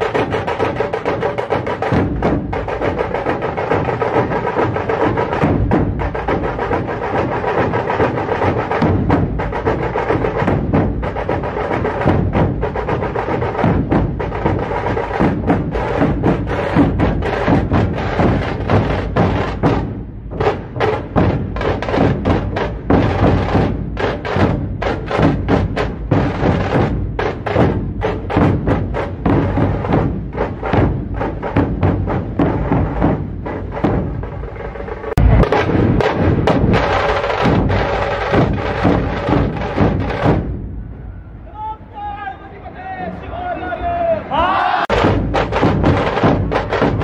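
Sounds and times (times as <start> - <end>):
music with strong percussion: 0.0 - 40.9, 44.9 - 47.0.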